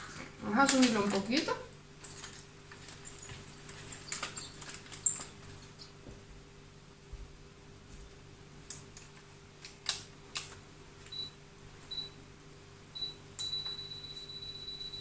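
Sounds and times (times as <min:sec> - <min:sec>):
steady high beep: 0:13.0 - 0:15.0.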